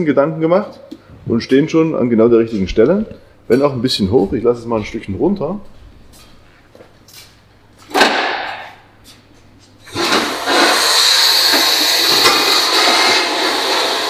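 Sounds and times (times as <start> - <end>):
car lift hissing: 9.8 - 14.0.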